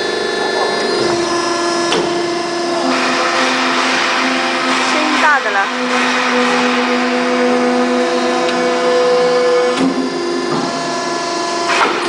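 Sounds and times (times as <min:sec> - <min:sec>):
tube bending machine humming: 0:00.0 - 0:12.0
machine clunk: 0:02.8 - 0:11.0, 0:11.6 - 0:12.0.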